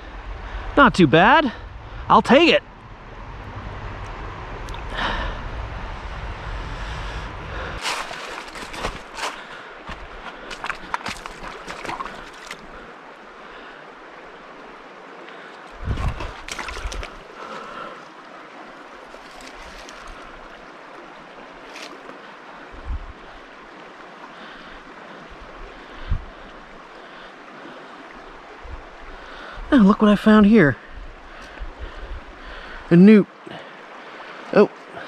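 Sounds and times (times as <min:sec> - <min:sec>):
shallow creek flowing: 0:00.0 - 0:35.0
wind on microphone: 0:01.4 - 0:09.2, 0:15.7 - 0:17.2, 0:22.7 - 0:23.4, 0:25.4 - 0:26.5, 0:28.5 - 0:29.8
hand rummaging through wet leaves: 0:07.8 - 0:09.6, 0:19.1 - 0:20.2.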